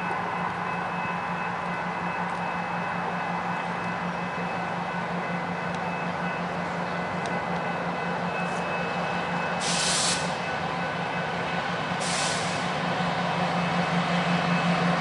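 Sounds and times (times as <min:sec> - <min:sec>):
diesel locomotive engines humming: 0:00.0 - 0:15.0
air hiss bursts: 0:09.6 - 0:10.4, 0:12.0 - 0:12.7.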